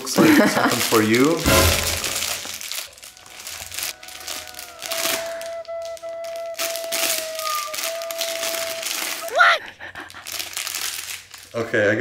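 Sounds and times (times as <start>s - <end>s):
plastic bag crinkling: 0.0s - 12.0s
high piped note: 1.4s - 9.3s.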